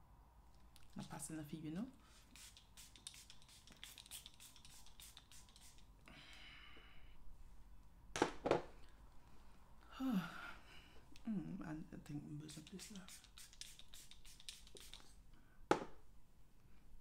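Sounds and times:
soft hiss: 0.2 - 8.0, 8.6 - 17.0
scratching and clicking of makeup brushes: 2.3 - 5.9, 12.5 - 15.2.

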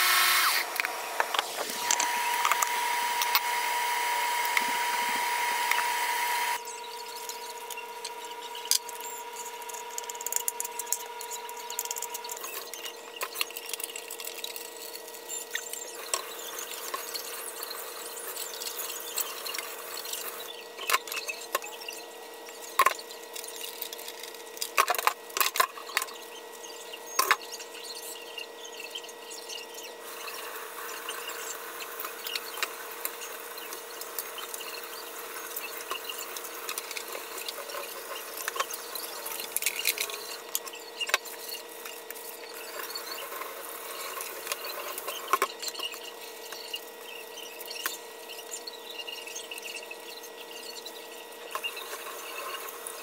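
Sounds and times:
steady hum: 0.0 - 13.3.

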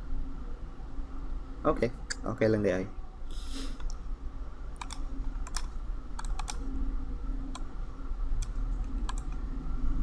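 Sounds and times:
steady low hum: 0.0 - 10.0
mouse and keyboard clicks: 4.8 - 6.6, 8.4 - 9.4.

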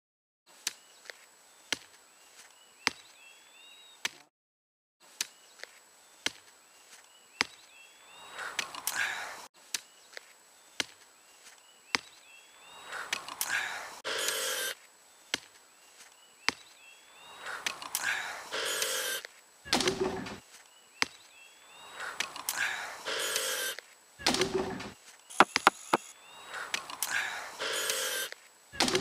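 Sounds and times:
hand tool striking ground: 24.3 - 26.0.

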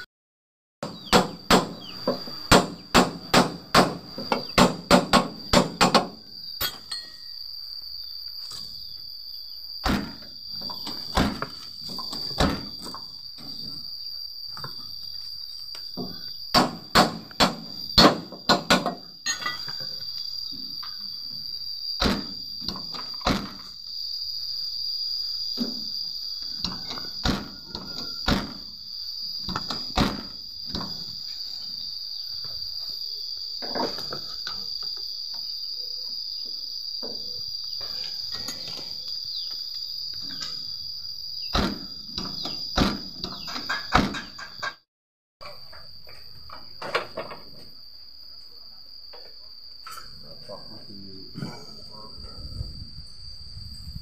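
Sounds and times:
high insect chirr: 0.8 - 44.8, 45.4 - 54.0
hammer striking steel: 2.5 - 7.3.

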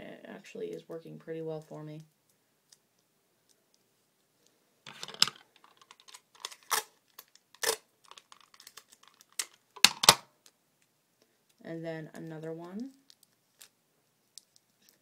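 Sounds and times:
tape pulled off roll and torn: 4.9 - 10.2.

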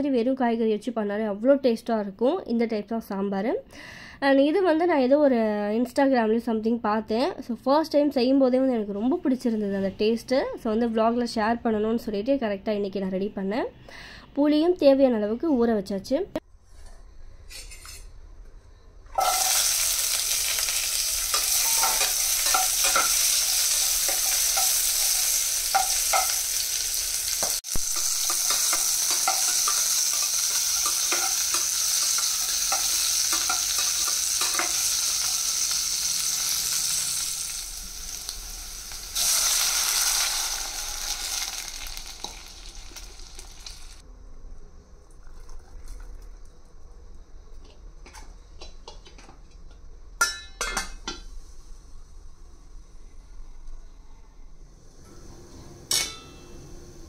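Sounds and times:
vegetables sizzling in oil: 19.2 - 44.0.

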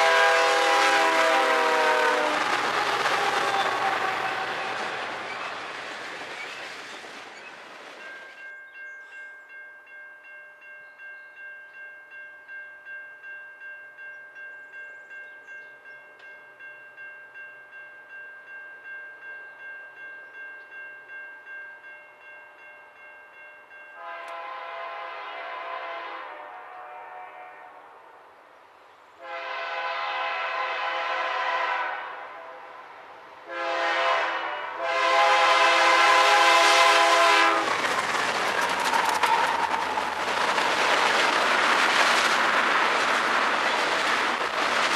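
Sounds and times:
locomotive air horn blasts: 0.0 - 5.0, 24.0 - 27.9, 29.2 - 32.7, 33.4 - 37.7
crossing warning bell ringing: 8.0 - 24.9.

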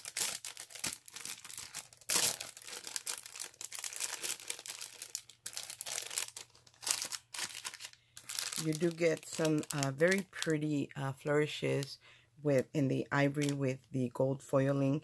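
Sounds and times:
cellophane crinkling: 0.0 - 10.8.

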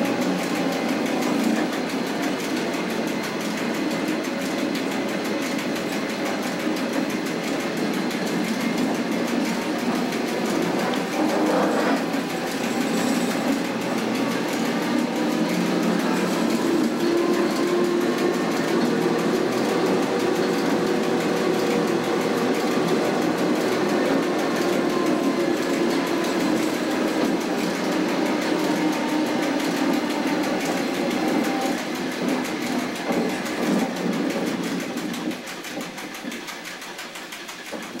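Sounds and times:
train running gear rumbling: 0.0 - 38.0
electric motors humming: 7.0 - 35.2.

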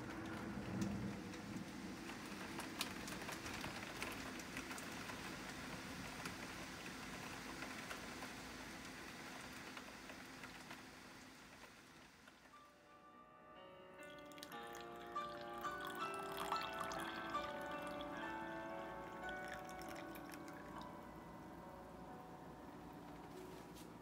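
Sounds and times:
steady rain falling: 0.0 - 12.6, 14.2 - 24.0.

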